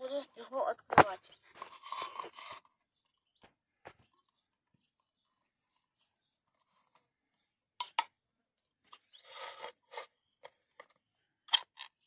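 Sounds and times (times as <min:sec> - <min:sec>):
tin lid scraping tear: 0:01.5 - 0:02.7.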